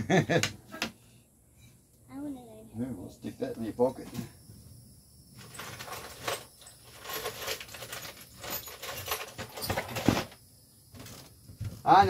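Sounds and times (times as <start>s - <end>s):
small objects clinking: 5.4s - 10.3s
rustling through junk: 5.4s - 11.9s.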